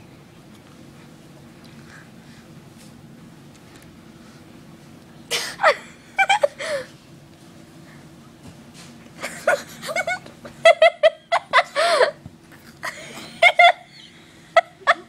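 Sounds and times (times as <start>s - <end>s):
children giggling and laughing: 9.2s - 12.2s, 12.8s - 15.0s.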